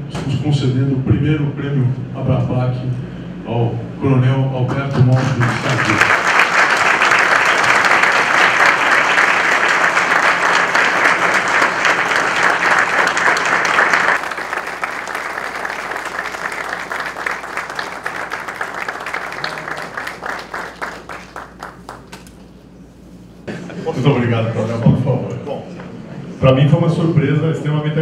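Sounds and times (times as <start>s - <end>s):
audience applauding: 5.0s - 22.5s.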